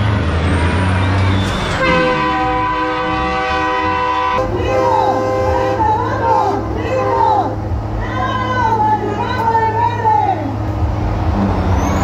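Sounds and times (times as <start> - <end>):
diesel truck engines running: 0.0 - 12.0
train-style air horn: 1.7 - 7.2.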